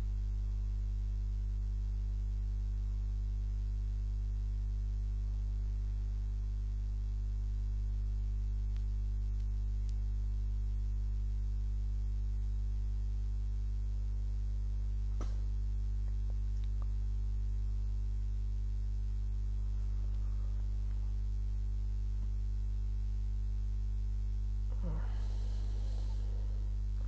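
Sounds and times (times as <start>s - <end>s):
low hum: 0.0s - 27.0s
faint clicks: 8.7s - 10.1s.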